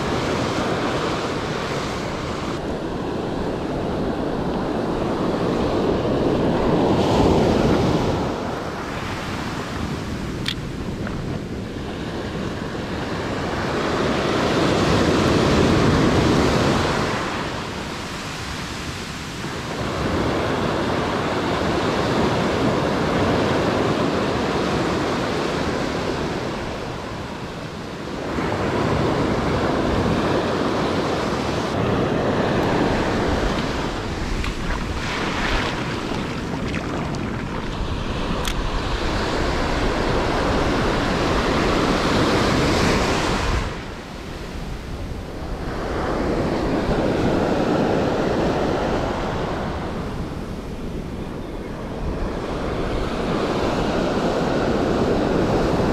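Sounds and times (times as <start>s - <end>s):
ocean surf on beach: 0.0s - 55.9s.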